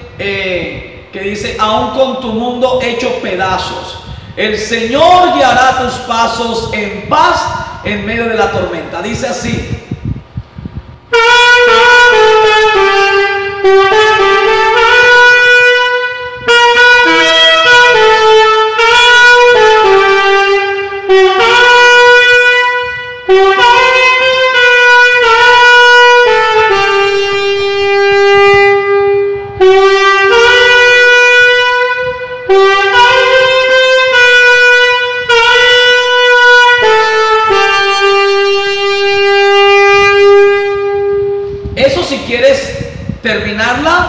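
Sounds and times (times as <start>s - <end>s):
solo alto saxophone melody: 11.1s - 41.7s.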